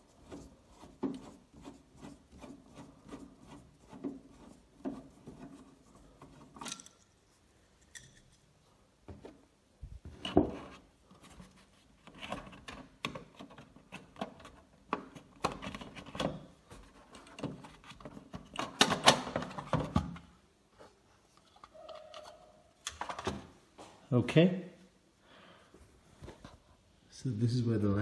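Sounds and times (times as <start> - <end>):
plastic clicking and scraping: 11.2 - 20.3.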